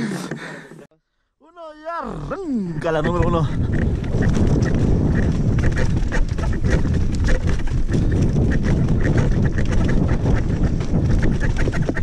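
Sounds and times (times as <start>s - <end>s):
mountain bike rattling: 2.8s - 12.0s.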